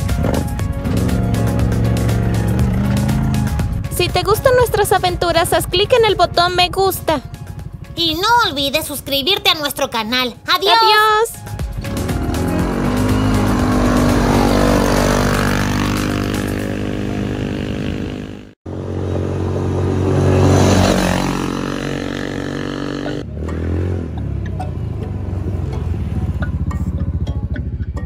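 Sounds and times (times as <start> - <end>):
small buggy engine running: 5.3 - 8.9, 11.7 - 28.0.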